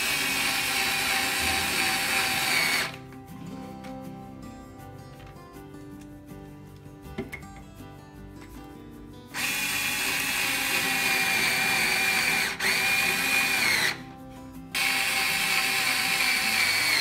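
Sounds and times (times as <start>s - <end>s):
electric screwdriver motor whine: 0.0s - 3.0s, 9.4s - 14.0s, 14.8s - 17.0s.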